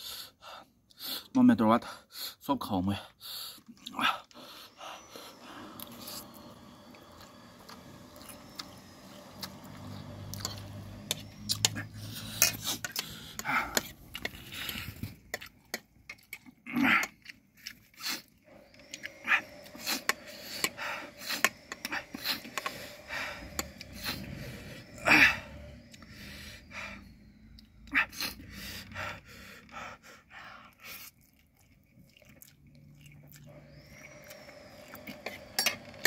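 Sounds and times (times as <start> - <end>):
sharp breaths: 3.0 - 8.1, 9.9 - 15.3, 18.0 - 31.1
noodle slurping: 3.4 - 36.0
chewing: 7.1 - 20.8, 30.7 - 36.0.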